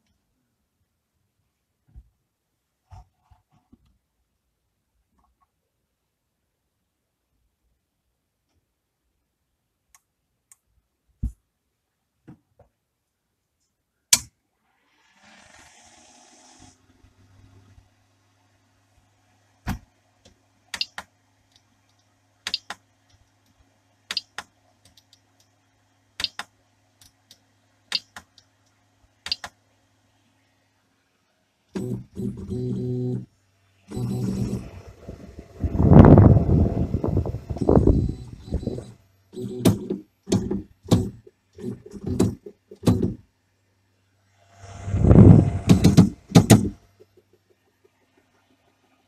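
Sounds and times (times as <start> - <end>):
faint low hum: 27.0 - 49.0
stepper motor buzz: 33.9 - 39.8.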